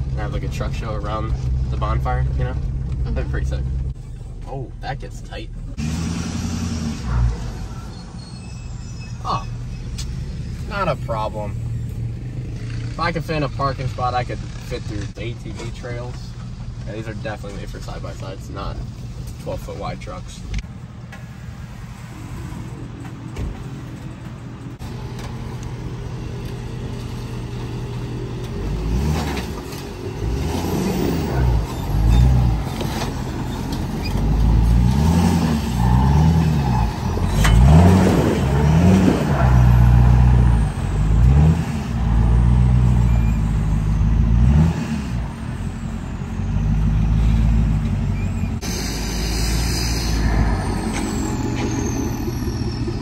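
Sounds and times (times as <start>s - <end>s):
diesel pickup engine revving: 0.0s - 19.3s, 24.3s - 53.0s
truck driving through mud and water: 28.7s - 48.5s.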